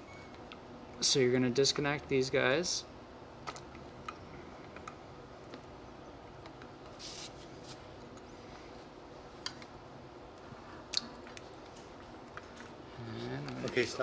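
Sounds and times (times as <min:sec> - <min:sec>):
soft rustle of handling: 0:06.9 - 0:08.9.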